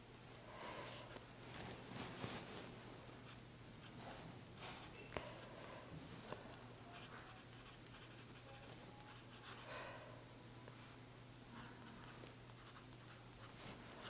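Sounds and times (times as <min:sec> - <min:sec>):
pen nib scratching on paper: 0:04.6 - 0:05.4, 0:06.8 - 0:09.7, 0:11.5 - 0:13.6.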